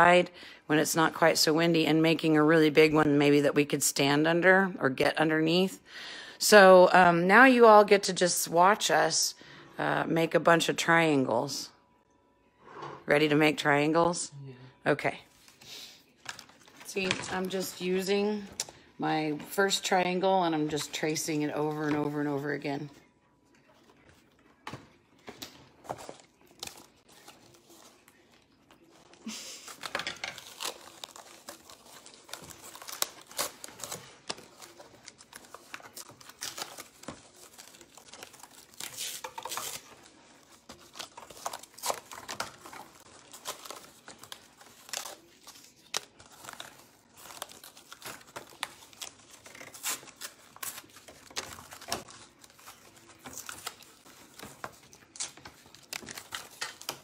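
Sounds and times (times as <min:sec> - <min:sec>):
paper and cardboard rustling: 0:23.7 - 0:57.0.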